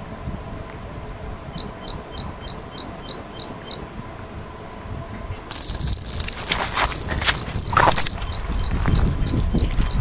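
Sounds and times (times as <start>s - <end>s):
high ringing with rattling strokes: 5.4s - 10.0s
small bird chirping: 7.7s - 10.0s.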